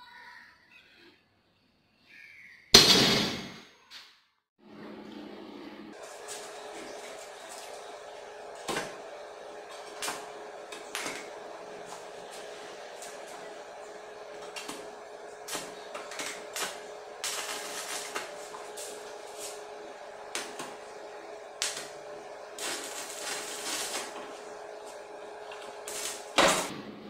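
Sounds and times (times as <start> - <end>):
steady welder hum: 4.9 - 27.0
arc welding crackling bursts: 9.8 - 26.7.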